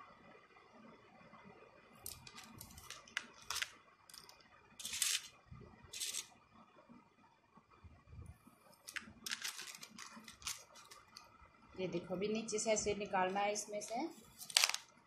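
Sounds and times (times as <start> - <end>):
beads clicking and rattling: 2.1 - 5.3, 5.9 - 6.3, 8.9 - 11.2, 14.4 - 14.8.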